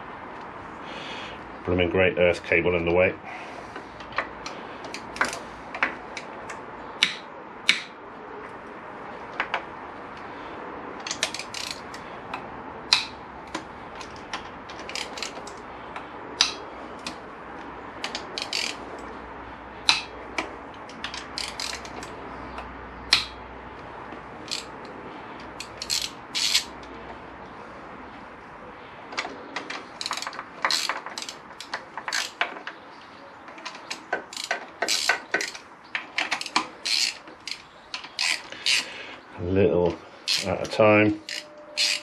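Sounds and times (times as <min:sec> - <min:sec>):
socket ratchet clicking: 0:11.0 - 0:15.6, 0:16.4 - 0:17.2, 0:18.0 - 0:19.1, 0:19.8 - 0:23.4, 0:24.4 - 0:24.9, 0:25.5 - 0:26.7, 0:29.6 - 0:32.6, 0:33.6 - 0:38.9, 0:40.3 - 0:40.5, 0:41.2 - 0:42.0.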